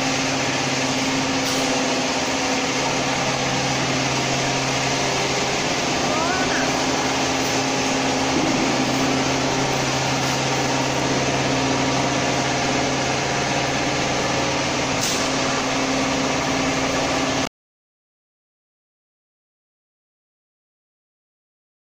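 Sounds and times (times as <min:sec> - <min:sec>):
factory machinery hissing: 0:00.0 - 0:17.5
low machinery hum: 0:00.0 - 0:17.5.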